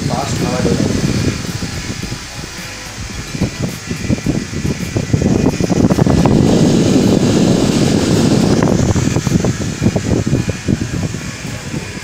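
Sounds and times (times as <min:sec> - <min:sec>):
fan air blast on microphone: 0:00.0 - 0:12.0.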